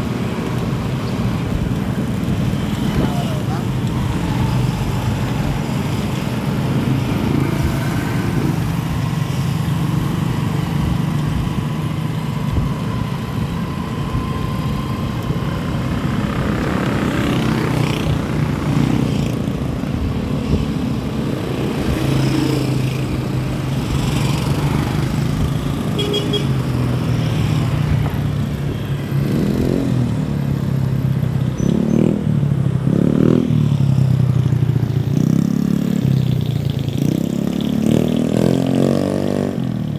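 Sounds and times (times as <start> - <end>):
motorcycles passing: 0.0 - 39.9
road and wind noise: 0.0 - 39.9.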